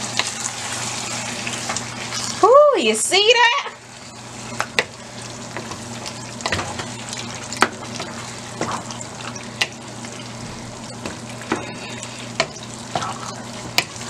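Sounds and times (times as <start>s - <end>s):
pot sizzling: 0.0s - 14.0s.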